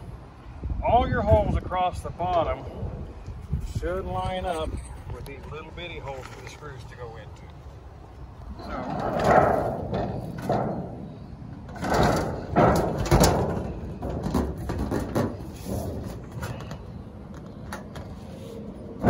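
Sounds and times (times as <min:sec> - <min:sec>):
wind rumble on microphone: 0:00.0 - 0:19.0
sheet-steel panels rattling and clanking: 0:08.7 - 0:16.6.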